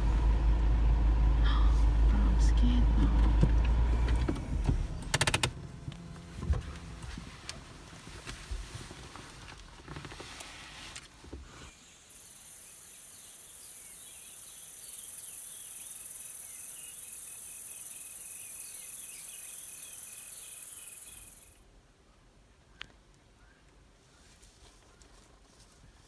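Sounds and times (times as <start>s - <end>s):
insects trilling drone: 11.7s - 21.6s
quick insect chirps: 11.7s - 21.6s
rapid pulsing insect call: 11.7s - 21.6s.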